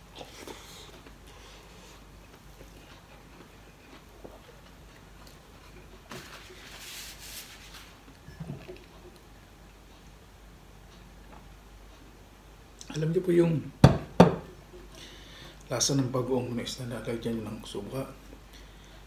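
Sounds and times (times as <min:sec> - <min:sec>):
glass mug knock: 0:13.8 - 0:14.5
breathy hiss: 0:15.0 - 0:15.7.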